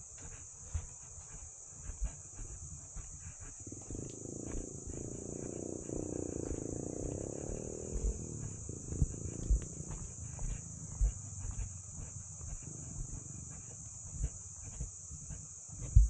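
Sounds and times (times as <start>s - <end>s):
insects chirring: 0.0s - 16.0s
dull low thumps: 0.2s - 16.0s
long droning sound: 3.8s - 12.1s.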